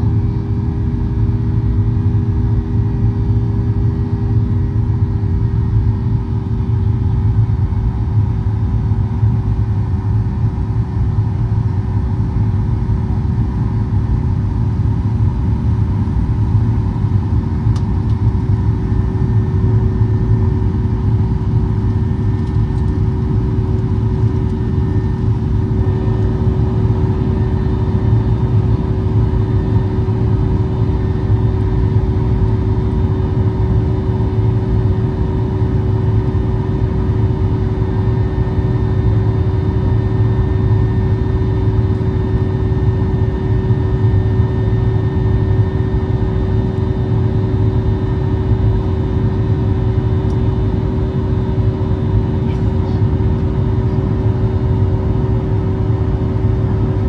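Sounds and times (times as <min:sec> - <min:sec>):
airplane cabin engine rumble: 0:00.0 - 0:57.0
constant cabin hum: 0:00.0 - 0:57.0.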